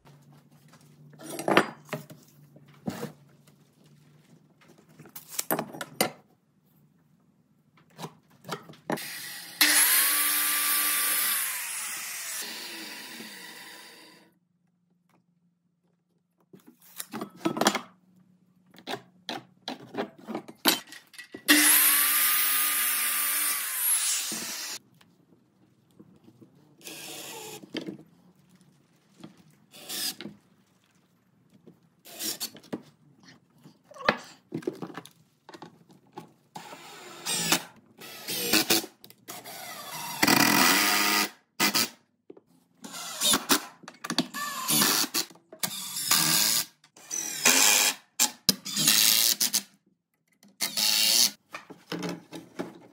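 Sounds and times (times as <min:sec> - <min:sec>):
power saw cutting board: 0:09.0 - 0:14.2, 0:21.5 - 0:24.8.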